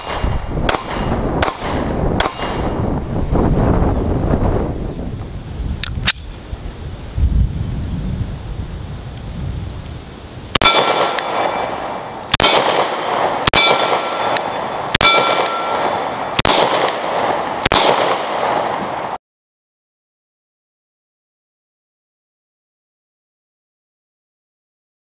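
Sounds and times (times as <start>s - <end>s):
pistol shots: 0.0s - 2.8s, 10.6s - 19.1s.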